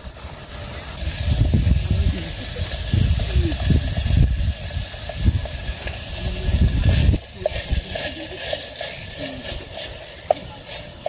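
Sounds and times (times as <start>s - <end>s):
strong wind buffeting microphone: 0.9s - 8.3s.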